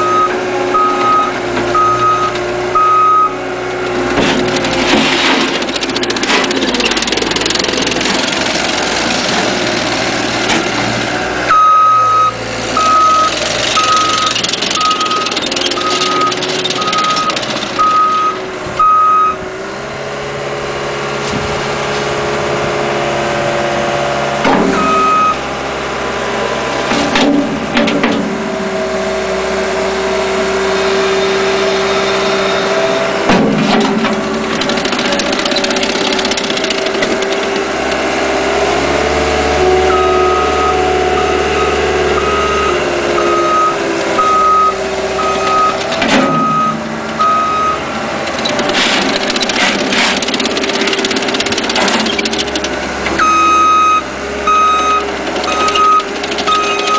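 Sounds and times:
backup alarm beeping: 0.0s - 3.4s, 11.5s - 19.4s, 24.7s - 25.4s, 39.9s - 47.9s, 53.2s - 56.9s
diesel engine running: 0.0s - 56.9s.

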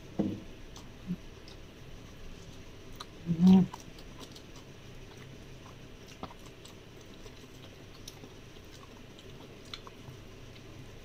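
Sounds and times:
chewing chili: 0.6s - 11.0s.

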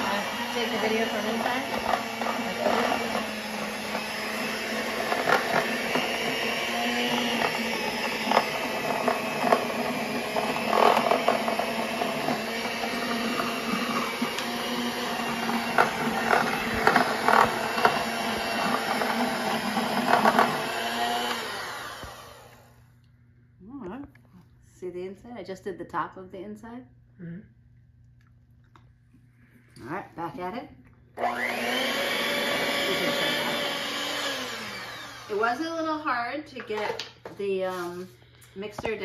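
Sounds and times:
electric hand mixer running: 0.0s - 22.9s, 31.2s - 37.1s.

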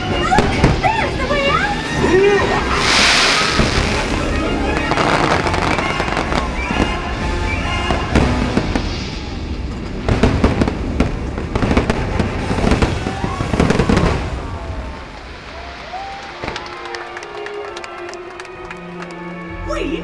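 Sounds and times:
show music: 1.1s - 8.8s
fireworks bursting and crackling: 2.5s - 17.5s.

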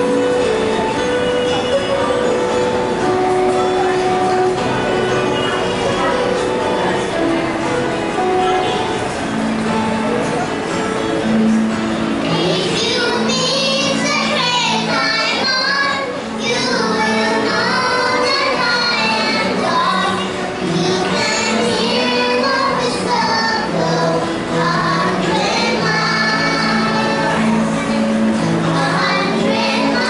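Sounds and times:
instrumental accompaniment: 0.0s - 30.0s
children singing into microphone: 11.3s - 30.0s.

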